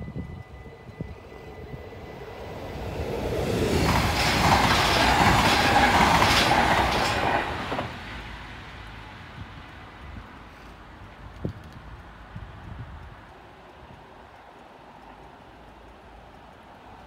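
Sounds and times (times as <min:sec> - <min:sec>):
train wheels clattering on rails: 0:00.2 - 0:10.4.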